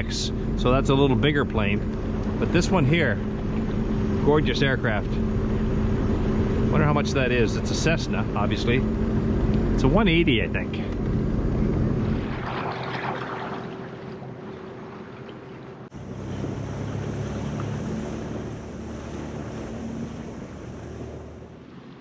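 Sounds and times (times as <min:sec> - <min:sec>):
watercraft engine running: 0:00.0 - 0:22.0
wind and water hiss: 0:10.0 - 0:22.0.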